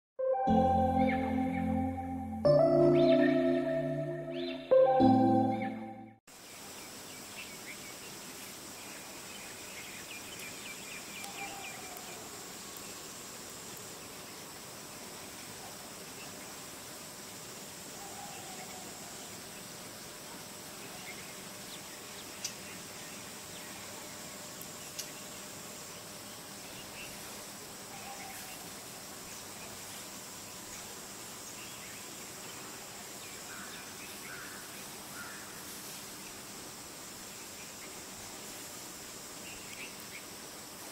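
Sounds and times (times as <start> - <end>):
bird chirping: 0.3 - 6.2
insects buzzing: 6.3 - 40.9
outdoor hiss: 6.3 - 40.9.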